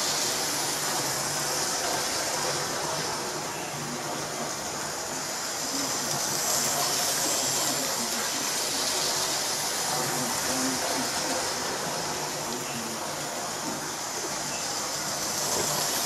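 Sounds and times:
model train whirring on rails: 0:00.0 - 0:16.0.

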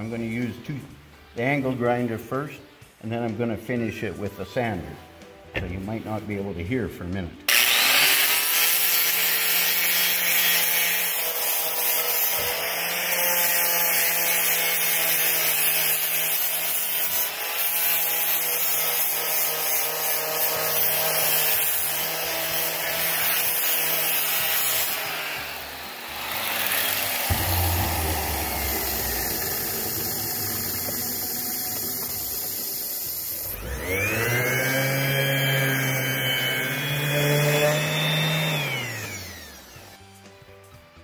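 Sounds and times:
angle grinder grinding metal: 0:07.5 - 0:40.0.

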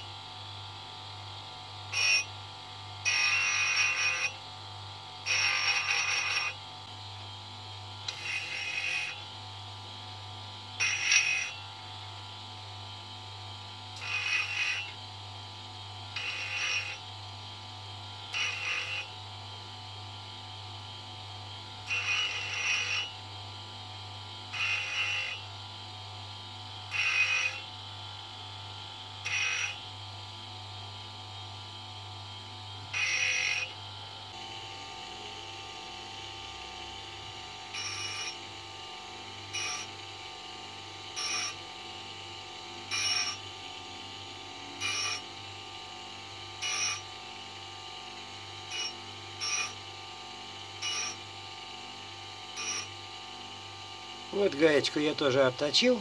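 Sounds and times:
bench grinder humming: 0:01.8 - 0:06.6, 0:07.9 - 0:09.4, 0:10.7 - 0:12.1, 0:14.0 - 0:15.1, 0:16.0 - 0:17.2, 0:18.0 - 0:19.2, 0:21.5 - 0:23.7, 0:24.3 - 0:25.5, 0:26.7 - 0:30.0, 0:32.3 - 0:56.0
metal grinding rasps: 0:03.1 - 0:04.3, 0:08.1 - 0:09.2, 0:14.0 - 0:14.8, 0:16.2 - 0:17.0, 0:18.4 - 0:19.0.

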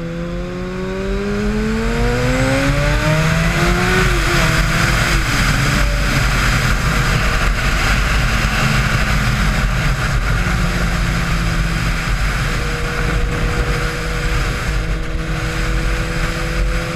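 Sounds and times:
motorcycle engine at speed: 0:00.0 - 0:16.9
wind rush: 0:00.0 - 0:16.9.

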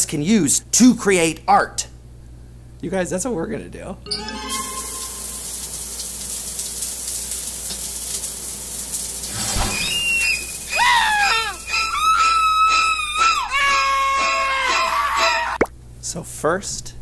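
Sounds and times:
high gliding whistle tones: 0:09.6 - 0:13.3.

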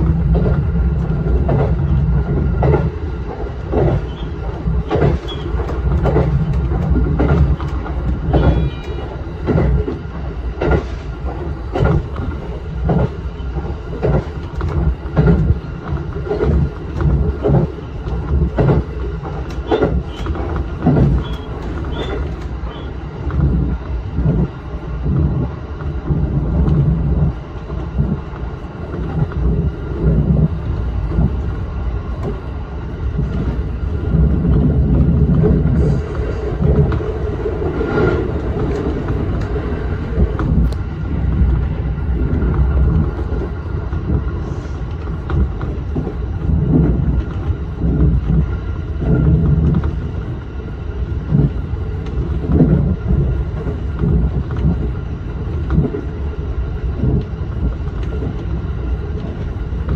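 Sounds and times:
wheel clacks over rail joints: 0:00.0 - 0:32.5
train running rumble: 0:00.0 - 0:59.9.

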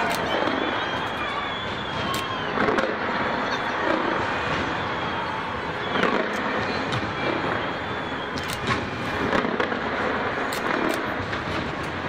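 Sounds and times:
fireworks cracking and banging: 0:00.0 - 0:12.0
steady background din: 0:00.0 - 0:12.0.

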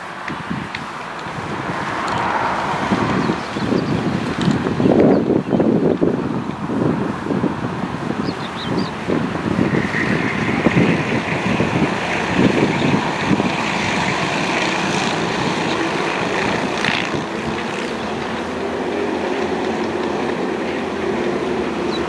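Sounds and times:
wind buffeting microphone: 0:00.0 - 0:22.0
kart engines buzzing: 0:07.6 - 0:22.0.

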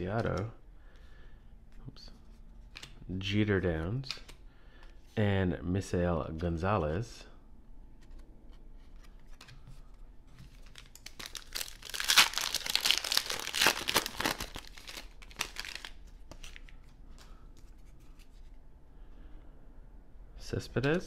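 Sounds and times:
foil wrapper tearing and crinkling: 0:10.7 - 0:16.0.

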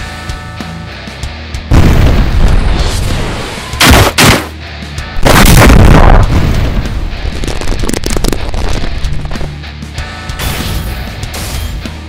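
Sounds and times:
background music: 0:00.0 - 0:12.0
battle blasts: 0:03.8 - 0:04.6, 0:05.2 - 0:07.0.

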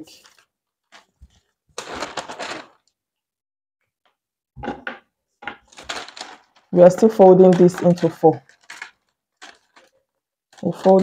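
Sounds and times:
paper rustling and crinkling: 0:00.0 - 0:03.0, 0:05.5 - 0:11.0.

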